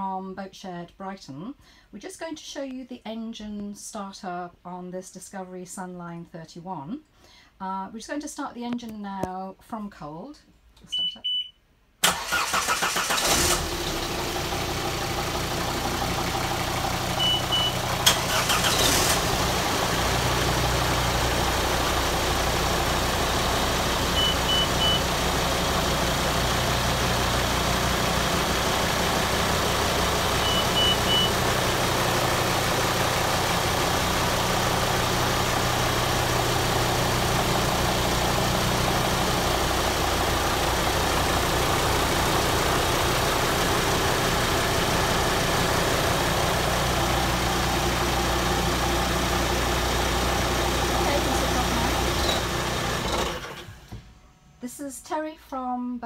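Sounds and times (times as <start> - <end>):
boat engines starting and idling: 12.0 - 53.7
short high beeps: 30.4 - 31.3.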